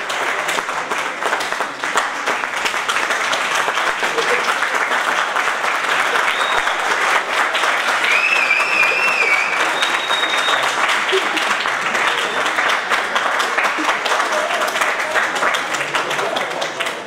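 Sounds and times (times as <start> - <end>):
audience applauding: 0.0 - 17.0
wavering high whistle: 8.0 - 10.7.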